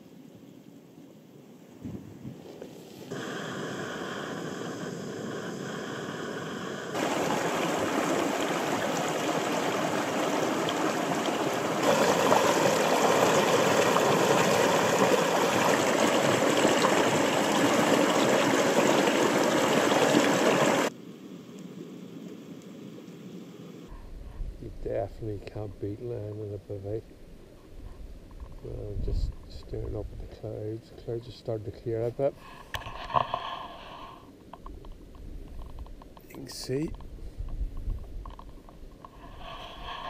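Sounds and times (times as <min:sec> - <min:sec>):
river rushing over rocks: 0:07.0 - 0:20.9.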